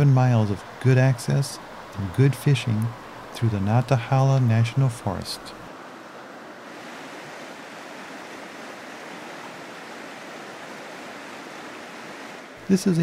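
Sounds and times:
water rushing over rocks: 0.0s - 13.0s.

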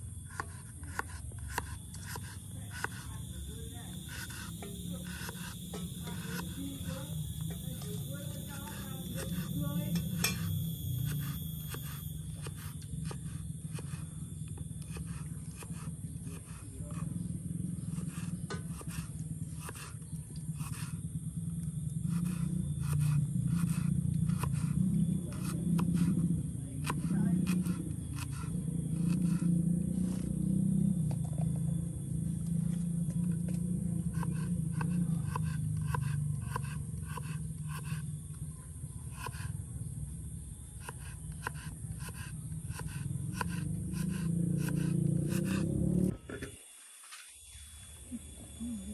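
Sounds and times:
steady low hum: 0.0s - 48.9s
knife chopping on wooden board: 0.3s - 3.0s, 14.9s - 17.0s, 17.9s - 19.9s, 22.1s - 26.2s, 26.8s - 29.5s, 34.1s - 38.0s, 40.8s - 45.8s.

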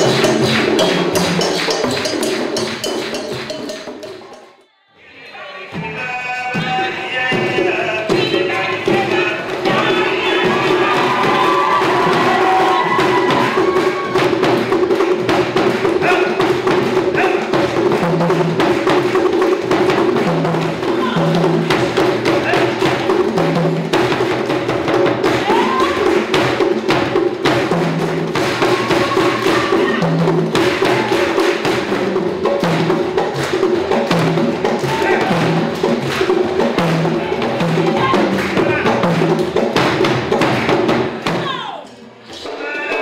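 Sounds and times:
hand drums ensemble playing: 0.0s - 4.7s, 5.5s - 43.0s.

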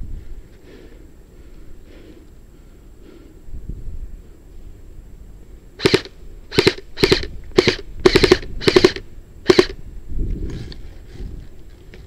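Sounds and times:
airsoft gun shots: 5.8s - 9.8s.

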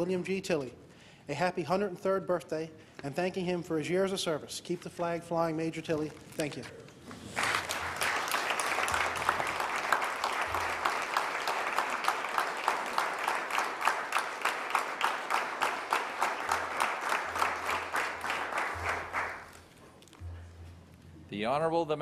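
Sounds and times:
many people clapping: 7.3s - 19.8s.

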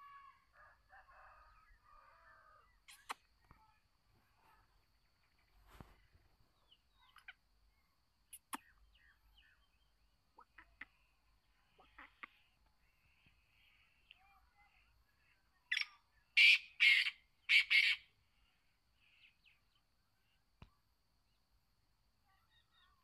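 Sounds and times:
francolin calling: 15.7s - 18.2s.

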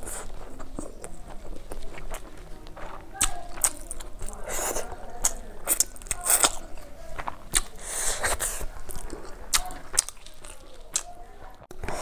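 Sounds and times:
chewing with wet lip smacks: 0.0s - 11.7s
sharp mouth clicks: 7.5s - 11.1s
breathy hiss: 7.8s - 8.8s.

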